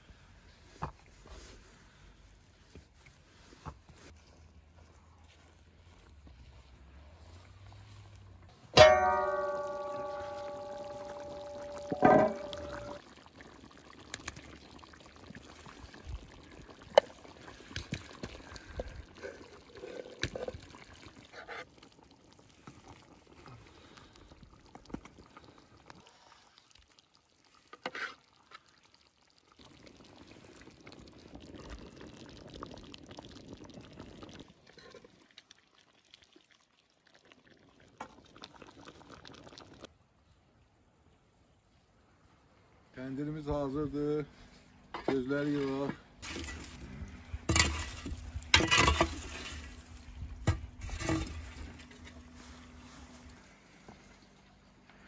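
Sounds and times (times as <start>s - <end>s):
liquid pouring and splashing: 8.8s - 39.9s, 45.6s - 53.3s.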